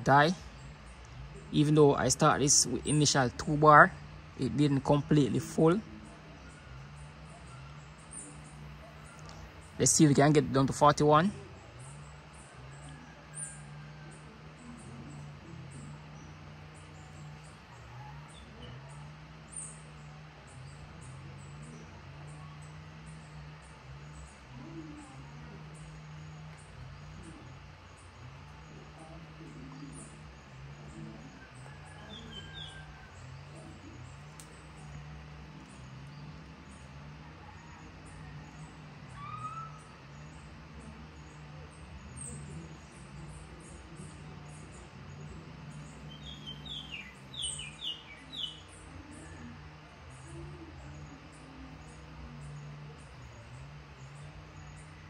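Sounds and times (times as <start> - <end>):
low wavering hum: 0.0 - 55.0
high insect chirp: 15.0 - 49.5.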